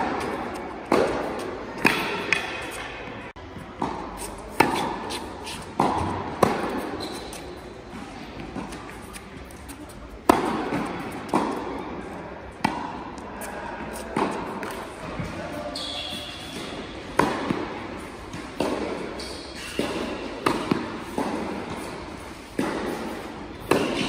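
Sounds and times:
rackets striking tennis ball: 0:00.0 - 0:11.8, 0:12.6 - 0:24.0
ball bouncing on hard court: 0:05.8 - 0:07.4.

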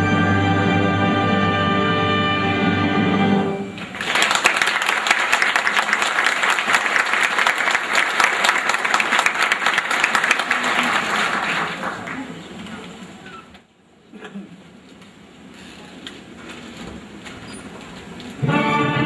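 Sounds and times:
orchestra sustained chord: 0:00.0 - 0:03.8, 0:18.4 - 0:19.0
audience applauding: 0:03.8 - 0:13.0.

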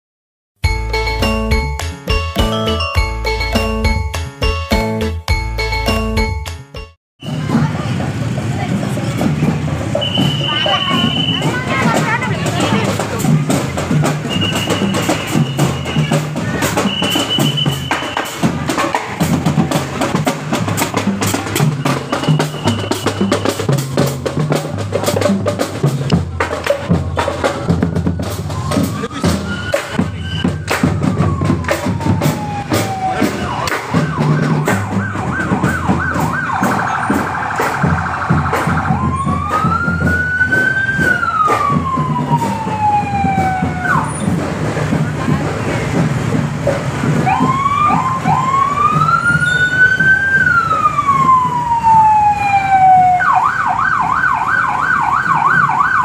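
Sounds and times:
music with repeating bass beat: 0:00.6 - 0:07.0
fast warbling siren yelp: 0:10.0 - 0:11.8, 0:27.5 - 0:44.3, 0:47.2 - 0:56.0
electronic siren wailing: 0:27.7 - 0:44.2, 0:47.2 - 0:56.0.

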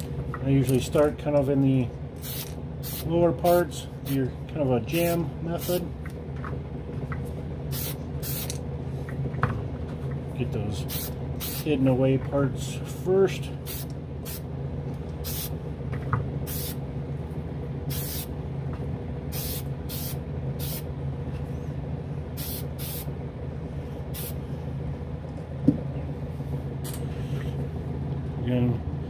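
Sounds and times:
exhaust fan humming: 0:00.0 - 0:29.0
aerosol can spraying: 0:02.2 - 0:03.1, 0:07.7 - 0:08.6, 0:10.9 - 0:11.7, 0:15.2 - 0:15.5, 0:16.5 - 0:16.8, 0:17.9 - 0:18.3, 0:19.3 - 0:20.8, 0:22.4 - 0:23.1.

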